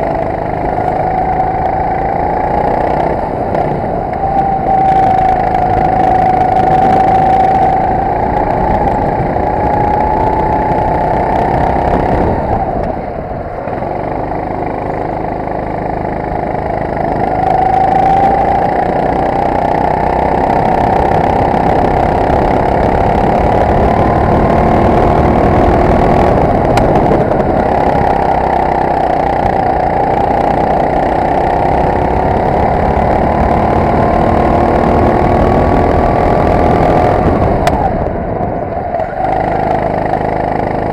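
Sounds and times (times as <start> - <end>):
kart engine at high revs: 0.0 - 40.9.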